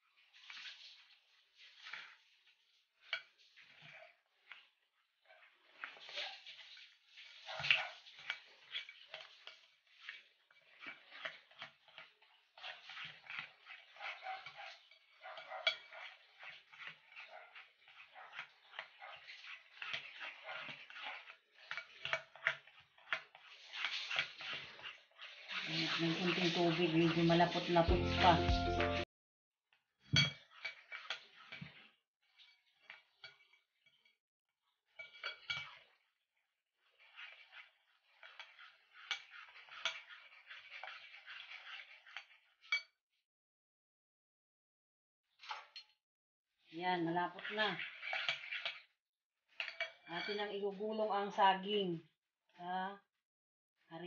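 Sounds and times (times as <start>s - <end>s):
hands squelching batter: 0.1s - 29.0s, 30.4s - 33.6s, 36.8s - 42.7s, 46.8s - 48.9s.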